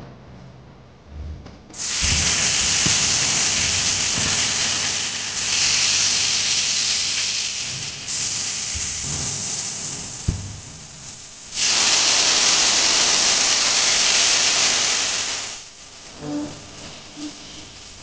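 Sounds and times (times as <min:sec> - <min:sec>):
hot oil sizzling in a wok: 0:01.8 - 0:16.1, 0:16.8 - 0:18.0.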